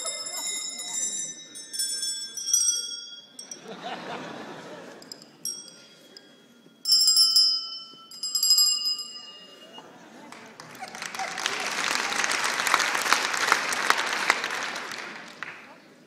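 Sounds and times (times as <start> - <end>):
audience noise: 0.0 - 6.8, 9.0 - 16.0
bell-like ringing: 0.0 - 10.0.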